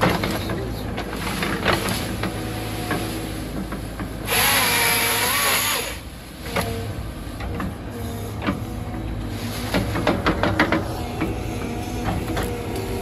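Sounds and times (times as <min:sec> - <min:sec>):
excavator engine and hydraulics: 0:00.0 - 0:13.0
grapple saw buzzing through wood: 0:04.2 - 0:06.1.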